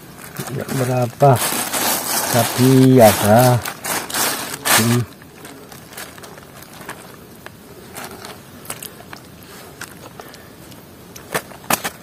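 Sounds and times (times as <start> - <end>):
plastic sheet crinkling: 0.0 - 9.2
outdoor hiss: 0.0 - 12.0.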